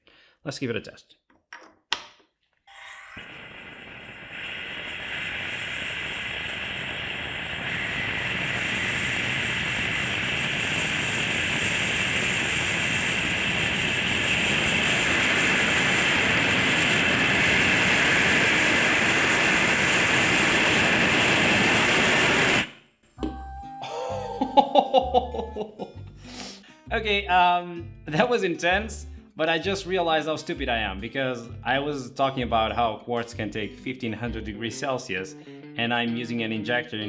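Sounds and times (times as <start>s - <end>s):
gas burner hissing: 2.7s - 22.8s.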